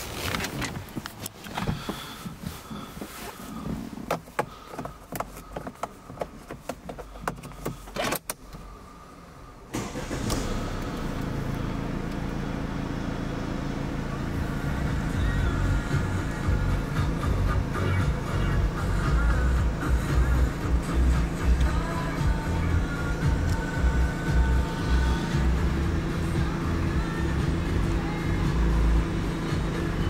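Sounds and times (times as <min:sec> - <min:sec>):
car engine running: 0:00.0 - 0:30.0
car control clicks and knocks: 0:04.0 - 0:08.6.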